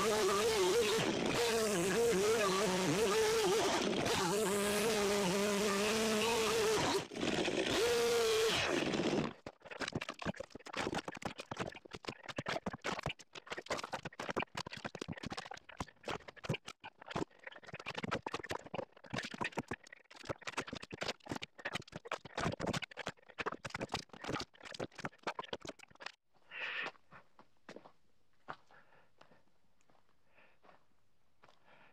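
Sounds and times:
chainsaw running: 0:00.0 - 0:09.5.

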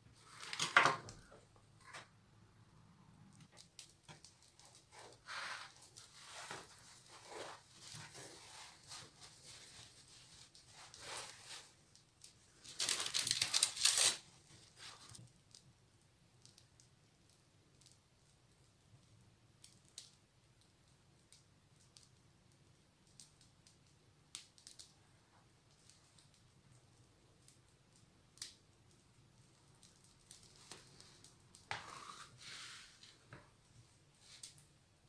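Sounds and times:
paper and bread crinkling: 0:00.2 - 0:02.0, 0:03.9 - 0:15.2.

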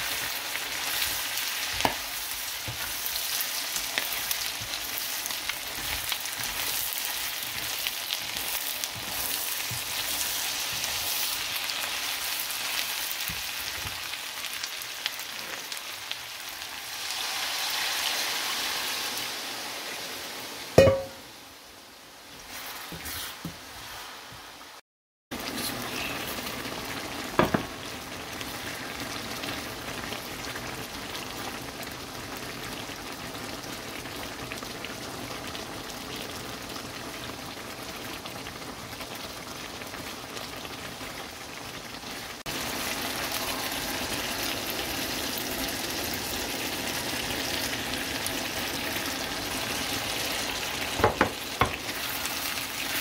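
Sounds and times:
food sizzling in a pan: 0:00.0 - 0:53.0
utensil clink: 0:20.8 - 0:21.2.

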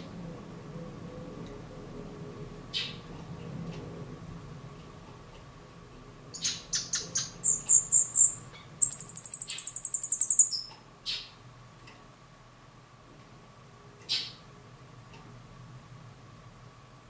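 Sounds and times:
bird singing: 0:06.3 - 0:11.3.

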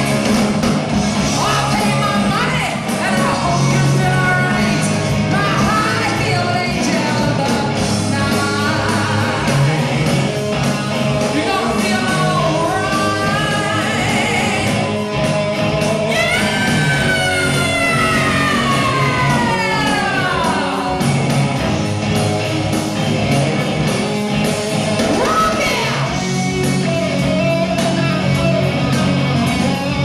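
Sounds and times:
live rock band playing: 0:00.0 - 0:30.0
woman singing: 0:01.4 - 0:09.9, 0:11.3 - 0:14.9, 0:16.1 - 0:21.0.

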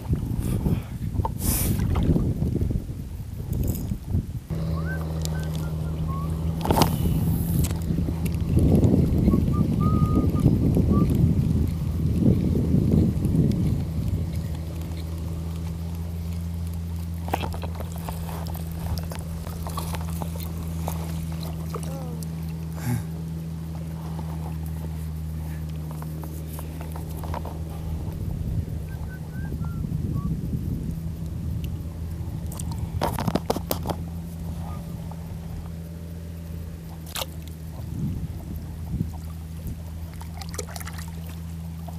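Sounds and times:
distant boat engine drone: 0:00.0 - 0:41.9
seawater trickling and lapping: 0:00.0 - 0:41.9
steady low hum: 0:00.0 - 0:41.9
small water splashes: 0:05.0 - 0:22.8, 0:36.8 - 0:41.9.

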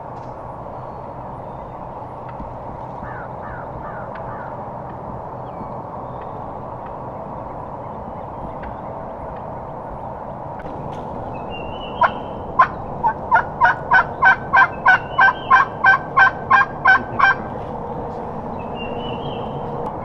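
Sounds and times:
turkey yelps: 0:11.9 - 0:17.5.

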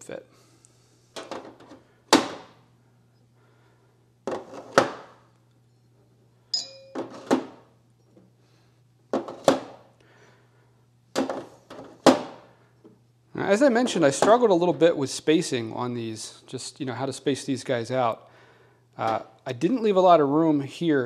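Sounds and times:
faint low hum: 0:00.0 - 0:09.2.

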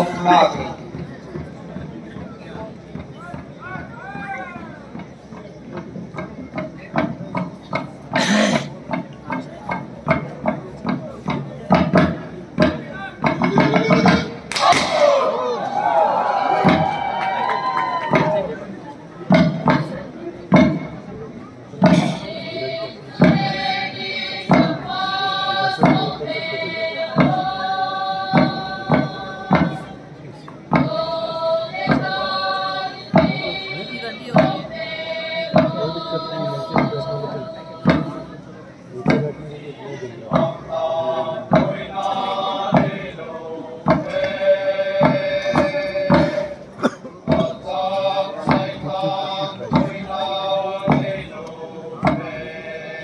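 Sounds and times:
drum beating steadily: 0:00.0 - 0:53.0
sharp drum beat: 0:16.5 - 0:17.1, 0:23.1 - 0:30.0, 0:30.7 - 0:38.4, 0:40.3 - 0:43.2, 0:43.8 - 0:51.4
group of voices chanting: 0:21.8 - 0:30.0
group of voices singing: 0:21.8 - 0:53.0.

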